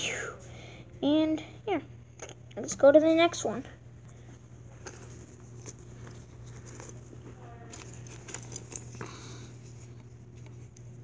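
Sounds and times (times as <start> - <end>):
steady low hum: 0.0 - 11.0
fabric pouch rustling: 4.6 - 9.0.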